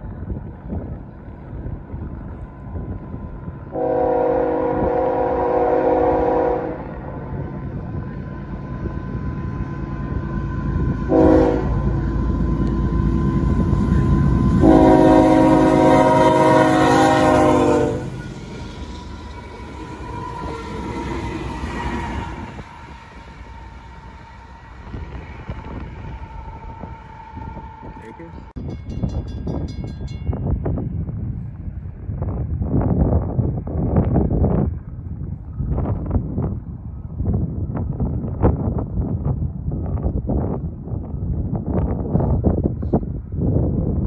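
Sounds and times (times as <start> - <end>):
train engine and rail rumble: 0.0 - 44.0
diesel locomotive horn: 3.7 - 7.4, 10.1 - 23.9.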